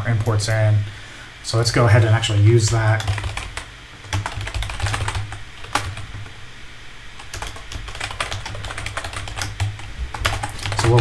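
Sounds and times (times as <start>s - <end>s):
typing on keyboard: 2.9s - 6.3s, 7.2s - 11.0s.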